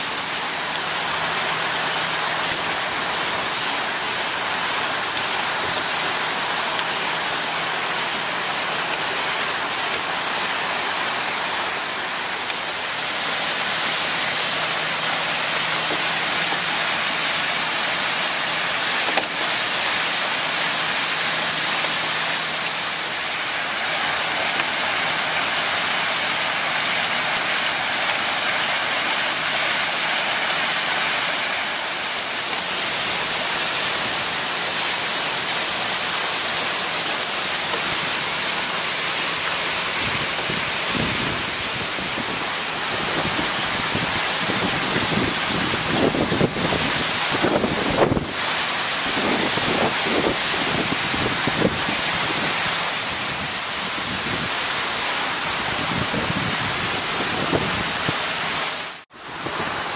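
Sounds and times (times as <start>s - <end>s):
steady rushing noise: 0.0s - 59.9s.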